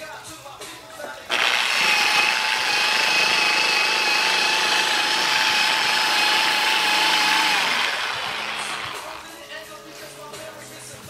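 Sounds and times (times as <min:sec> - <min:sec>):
polisher motor whine: 0:01.3 - 0:09.3.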